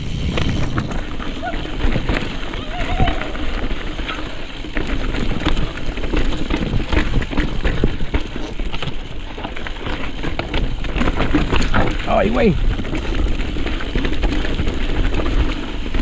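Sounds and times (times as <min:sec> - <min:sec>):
bike tyres crunching over rock: 0:00.0 - 0:16.0
sharp knocks and rattles: 0:03.5 - 0:16.0.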